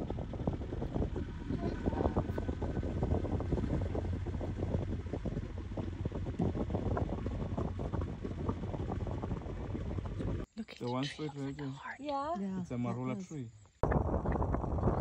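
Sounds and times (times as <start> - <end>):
wind buffeting microphone: 0.0 - 10.5, 13.8 - 15.0
low engine rumble: 0.0 - 11.8.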